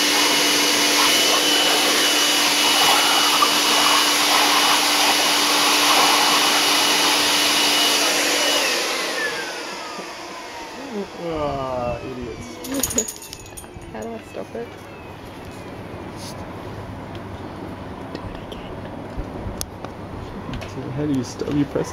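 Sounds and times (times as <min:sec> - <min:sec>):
leaf blower motor spinning down: 0:00.0 - 0:15.0
electric leaf blower running: 0:00.0 - 0:15.4.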